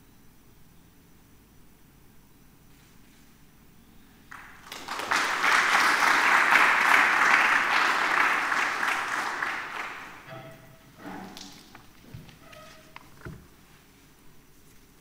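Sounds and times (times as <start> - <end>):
audience applauding: 4.3 - 10.3.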